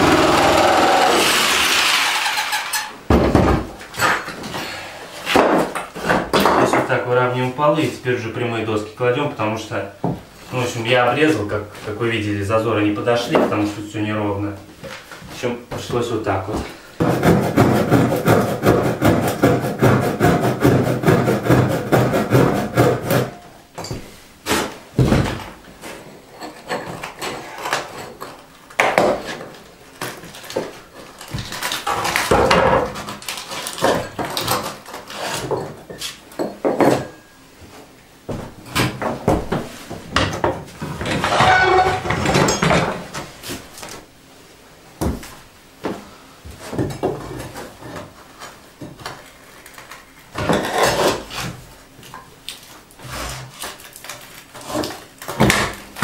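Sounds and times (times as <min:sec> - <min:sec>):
wooden knocks and scraping: 0:02.1 - 0:04.6, 0:14.8 - 0:37.1, 0:38.3 - 0:43.9.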